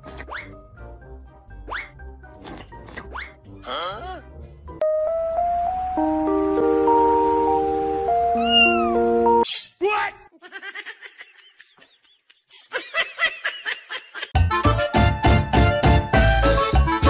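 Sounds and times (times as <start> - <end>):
background music: 0.0 - 9.4, 14.4 - 17.0
cat meowing: 8.4 - 9.0.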